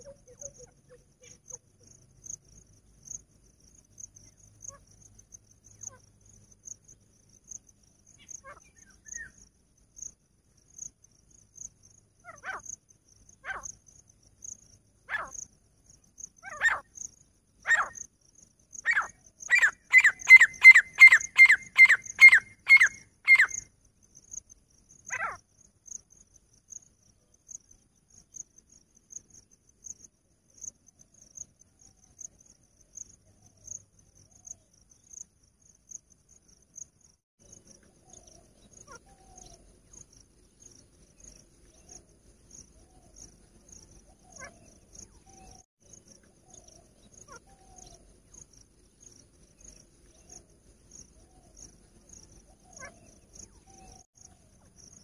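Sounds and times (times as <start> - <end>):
insect chirping: 0.0 - 55.0
francolin calling: 8.1 - 10.2, 15.0 - 15.5, 16.3 - 18.1, 18.8 - 23.7, 25.0 - 25.4, 37.8 - 40.0, 40.7 - 48.5, 49.1 - 55.0.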